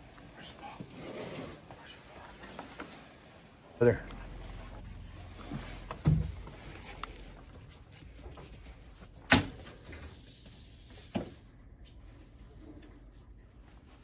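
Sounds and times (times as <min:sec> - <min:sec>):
low steady hum: 0:00.0 - 0:10.2.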